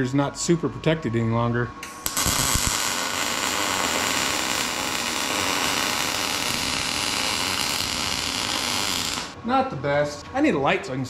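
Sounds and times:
welding arc hiss and crackle: 1.8s - 9.4s.

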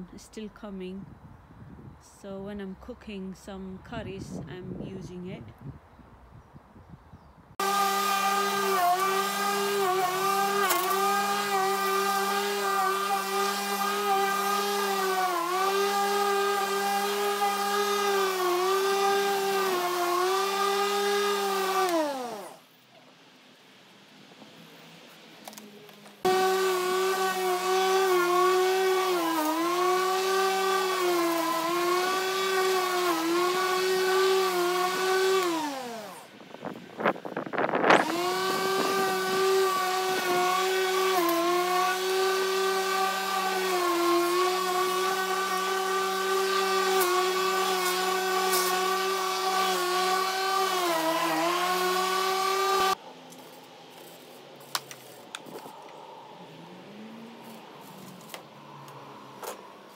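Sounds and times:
electric lawnmower motor whine: 7.6s - 22.6s, 26.2s - 54.3s.

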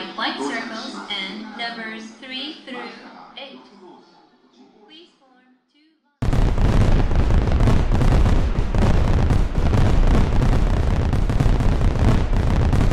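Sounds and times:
fireworks booming and crackling: 6.2s - 12.9s.

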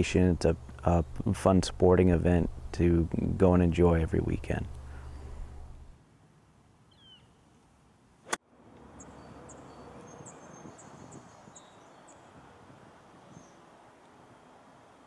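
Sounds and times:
bird chirping: 4.7s - 5.9s, 6.9s - 7.4s, 9.0s - 12.4s.

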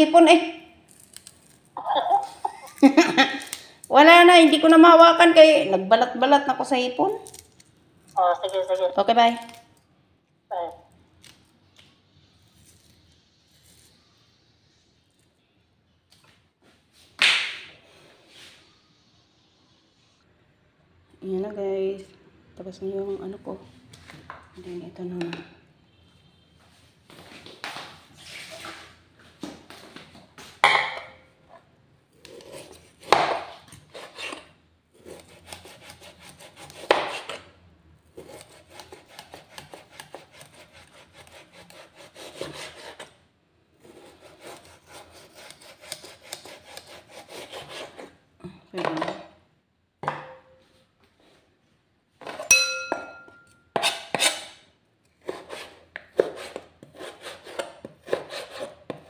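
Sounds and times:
knife sawing through meat: 35.0s - 37.3s, 38.2s - 43.1s, 43.8s - 48.1s
loud ringing clink: 52.4s - 53.6s.

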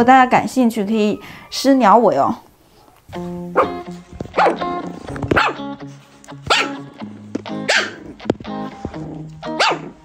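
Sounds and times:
dog barking: 2.8s - 5.7s, 6.5s - 6.8s, 7.6s - 8.0s, 9.5s - 10.0s
background music: 3.1s - 10.0s.

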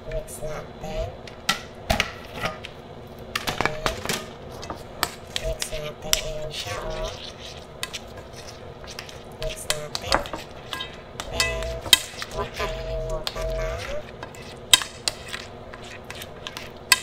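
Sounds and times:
plastic glove rustling: 6.4s - 17.0s
wet squelching: 6.6s - 17.0s.

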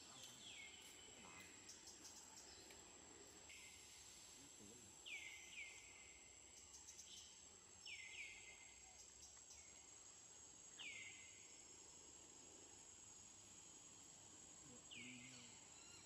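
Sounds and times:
bird chirping: 0.0s - 2.9s, 3.5s - 9.9s, 14.9s - 16.0s
insect drone: 0.0s - 16.0s.

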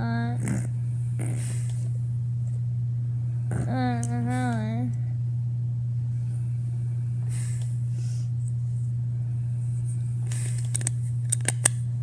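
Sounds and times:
low hum: 0.0s - 12.0s
battery cover clicking: 10.4s - 11.8s.

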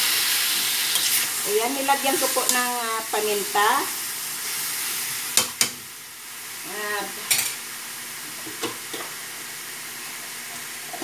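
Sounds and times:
chicken and onion sizzling in wok: 0.0s - 11.0s.

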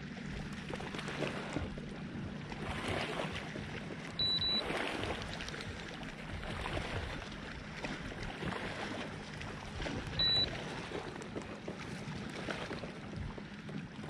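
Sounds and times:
water splashing around kayak: 0.0s - 14.0s
short high beep: 4.2s - 4.7s, 10.2s - 10.5s.

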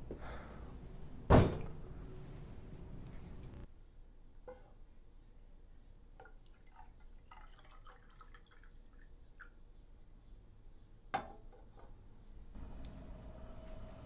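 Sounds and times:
water trickling into a glass: 6.2s - 9.6s.

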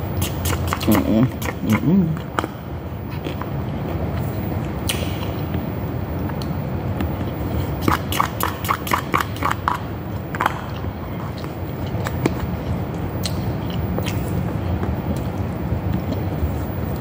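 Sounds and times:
low background hum: 0.0s - 17.0s
chewing mouth clicks: 0.2s - 5.6s, 6.2s - 17.0s.

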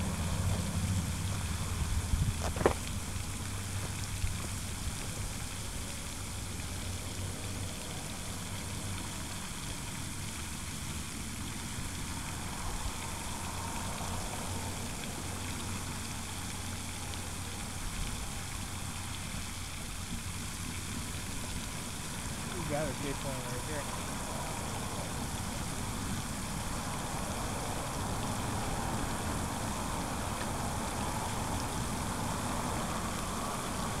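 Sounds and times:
constant low rumble: 0.0s - 34.0s
even hiss: 11.8s - 34.0s.

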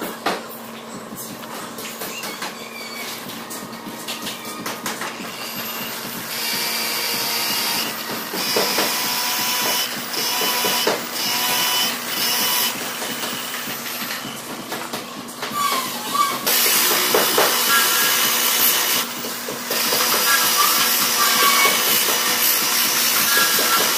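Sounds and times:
angle grinder sanding wood: 15.6s - 23.9s.

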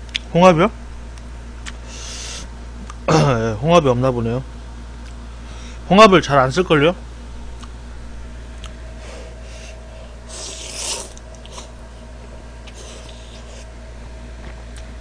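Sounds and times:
steady low hum: 0.0s - 15.0s
man slurping noodles: 10.3s - 11.7s.

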